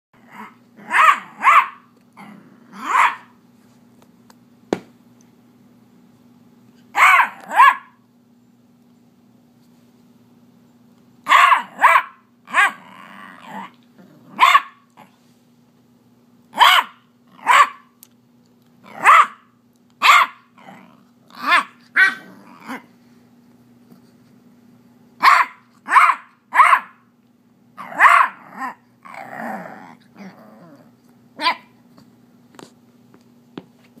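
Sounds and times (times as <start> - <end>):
dog growling: 0.2 - 1.5, 2.2 - 3.1, 12.5 - 14.4, 20.6 - 22.9, 27.8 - 31.5
puppy barking: 0.4 - 1.9, 2.8 - 3.4, 6.9 - 8.0, 11.2 - 12.9, 14.3 - 14.9, 16.6 - 17.9, 18.9 - 20.5, 21.4 - 22.8, 25.2 - 27.1, 27.8 - 28.8, 31.4 - 31.7.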